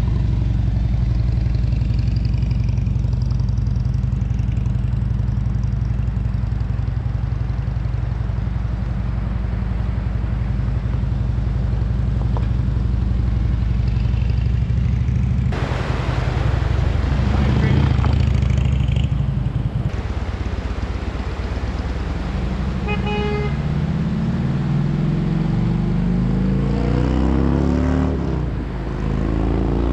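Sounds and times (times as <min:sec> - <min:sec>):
motorcycle engine running: 0:00.0 - 0:15.6, 0:17.2 - 0:25.6.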